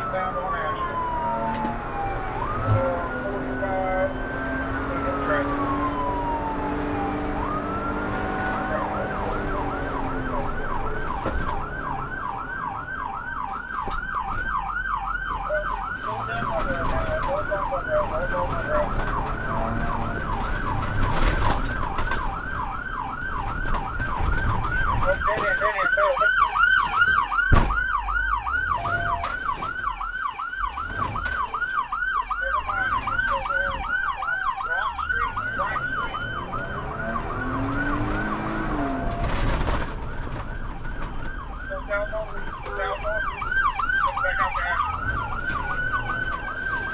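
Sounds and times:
police siren wailing and yelping: 0.0 - 46.9
sharp thump: 27.5 - 27.8.

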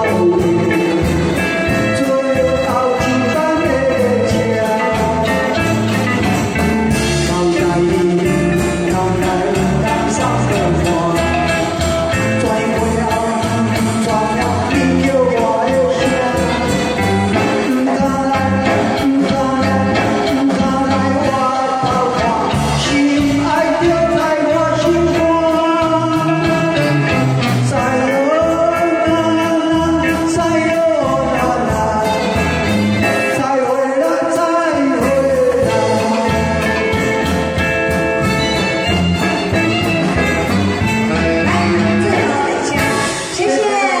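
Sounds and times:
man singing into a microphone: 0.0 - 37.6, 41.0 - 43.6
karaoke backing track: 0.0 - 44.0
woman singing along: 41.2 - 44.0.

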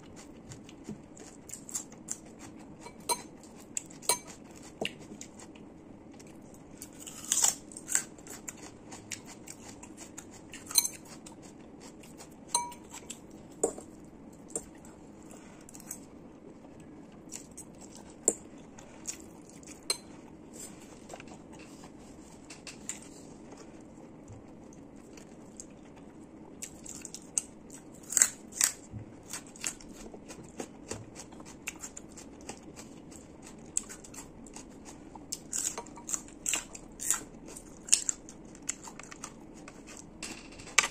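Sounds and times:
faint low hum: 0.0 - 40.9
person crunching raw food: 6.2 - 12.3, 24.5 - 40.1.

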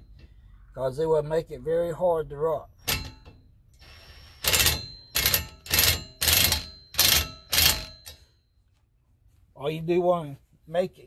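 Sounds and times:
impact wrench bursts: 2.8 - 8.2.

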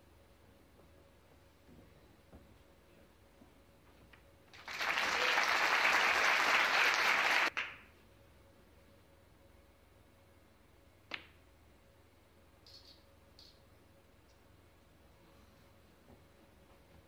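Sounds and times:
audience applauding: 4.5 - 7.7.

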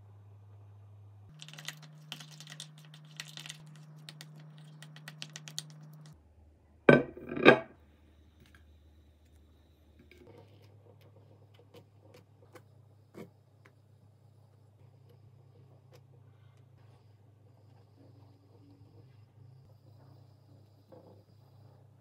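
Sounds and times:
typing on a keyboard: 1.4 - 6.1.

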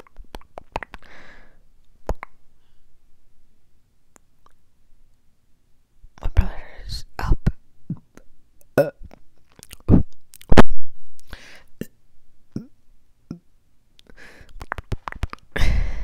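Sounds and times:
wet mouth clicks and lip smacks: 0.0 - 1.1, 2.0 - 2.4, 9.1 - 10.6, 14.0 - 15.6.

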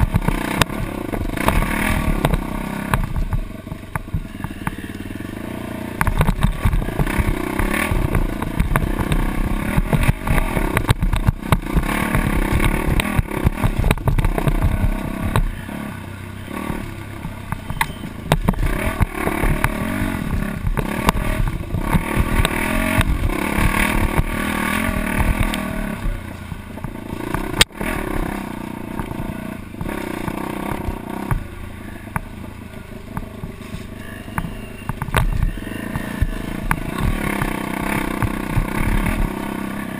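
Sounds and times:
dirt bike engine revving: 0.0 - 39.9
knocks from bumpy ground: 6.0 - 15.5, 16.6 - 27.7, 29.8 - 31.5, 33.2 - 39.4.

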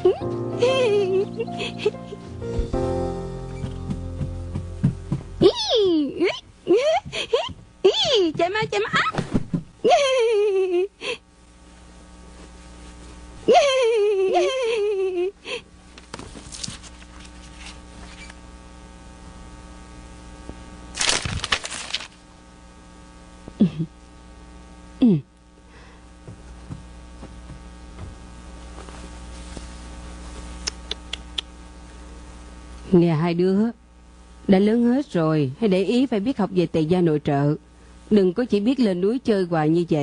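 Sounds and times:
electrical hum: 0.0 - 40.0
girl crying out: 5.4 - 8.1.

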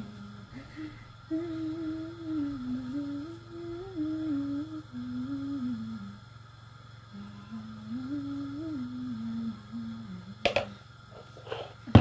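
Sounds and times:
person humming a slow tune: 0.0 - 6.3, 7.1 - 10.9
low background hum: 0.0 - 12.0.

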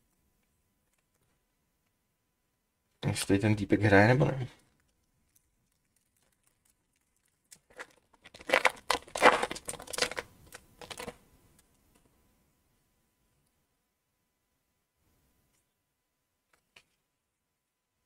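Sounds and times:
foil wrapper tearing and crinkling: 4.8 - 11.2.

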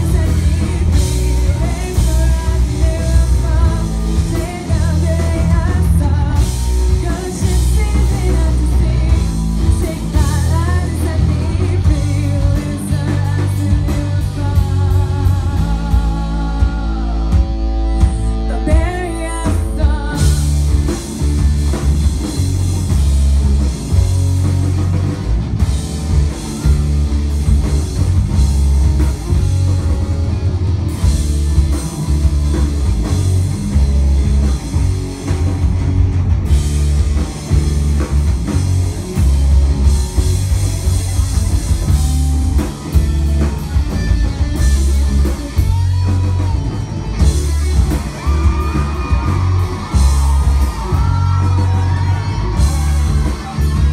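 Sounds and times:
drum kit beat: 0.0 - 53.9
electric bass: 0.0 - 53.9
electric guitars: 0.0 - 53.9.

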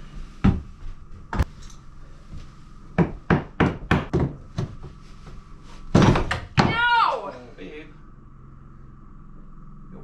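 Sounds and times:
hammer knocking floorboard: 3.0 - 4.9.

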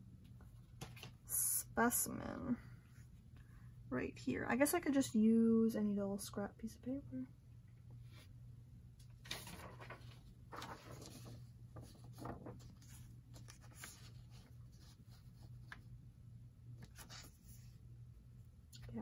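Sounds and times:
low steady hum: 0.0 - 19.0
paper rustling and scraping: 9.2 - 15.9.

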